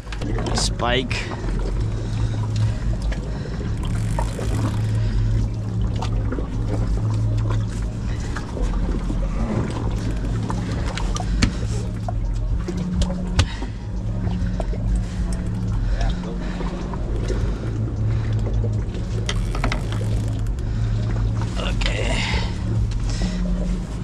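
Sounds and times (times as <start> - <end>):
outboard engines idling: 0.0 - 24.0
small clicks and knocks: 19.2 - 20.6.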